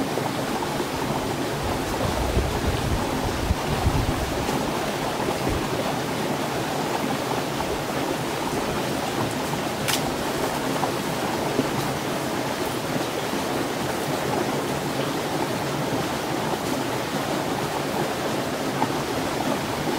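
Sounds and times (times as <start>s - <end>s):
running water rushing: 0.0s - 19.9s.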